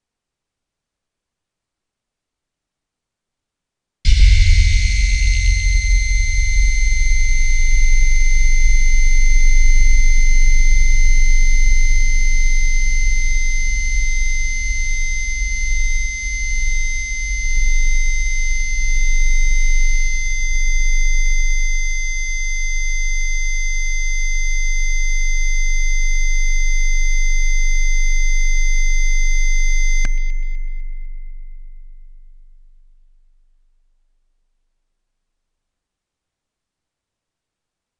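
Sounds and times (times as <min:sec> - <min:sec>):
piercing high tones: 0:04.1 - 0:32.7
deep bass tone: 0:04.1 - 0:33.7
click: 0:30.0 - 0:30.3.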